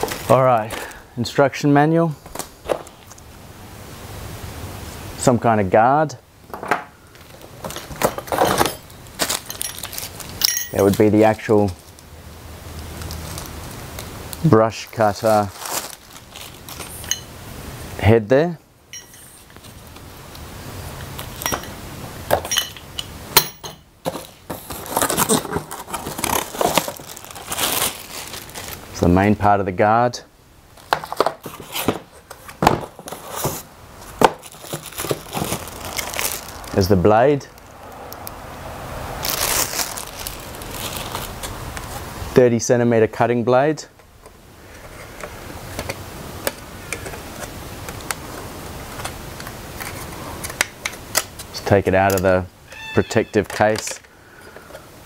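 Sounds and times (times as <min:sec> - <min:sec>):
cardboard packaging rustling: 0:00.0 - 0:01.0, 0:07.0 - 0:17.3, 0:24.0 - 0:29.0, 0:30.7 - 0:38.0, 0:39.1 - 0:42.2
steady background hiss: 0:00.0 - 0:55.0
plastic wrapping crinkling: 0:07.1 - 0:17.3, 0:24.1 - 0:29.0, 0:30.7 - 0:38.3, 0:39.2 - 0:42.1.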